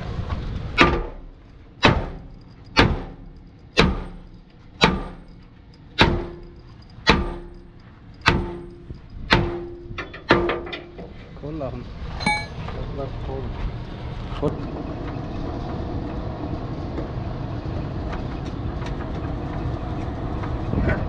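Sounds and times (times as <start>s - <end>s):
sledgehammer striking metal: 0.8s - 11.0s, 12.2s - 12.7s.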